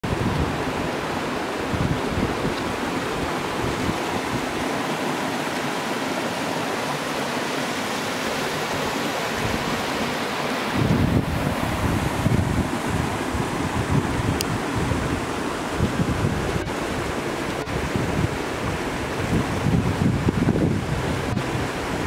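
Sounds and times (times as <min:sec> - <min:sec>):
wind buffeting microphone: 0:00.0 - 0:05.8, 0:08.0 - 0:22.0
waterfall rushing: 0:00.0 - 0:22.0.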